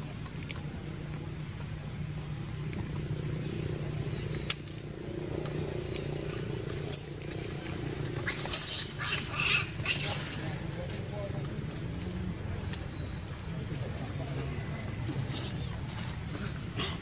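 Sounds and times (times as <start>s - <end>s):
steady low hum: 0.0s - 17.0s
macaque screaming: 8.2s - 10.4s.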